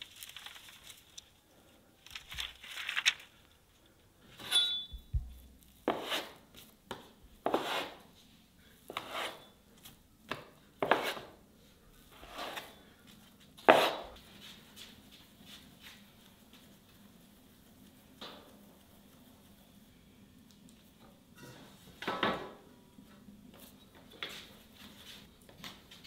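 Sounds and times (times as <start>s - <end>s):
short strokes of hand work: 8.8s - 9.6s.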